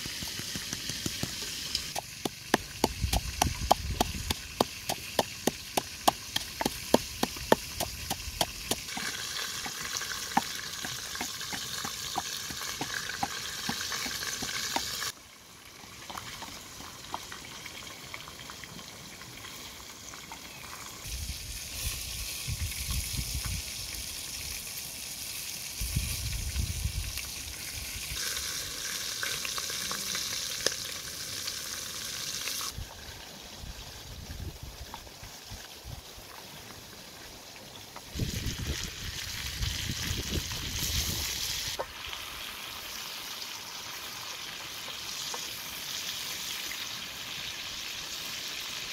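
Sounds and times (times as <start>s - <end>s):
wooden pestle pounding mortar: 0.0s - 15.1s.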